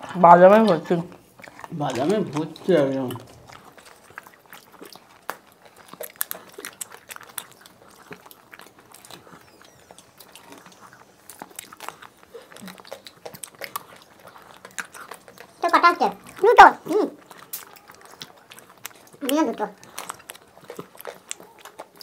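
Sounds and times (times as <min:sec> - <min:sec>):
mouth clicks and smacks chewing: 0:00.0 - 0:22.0.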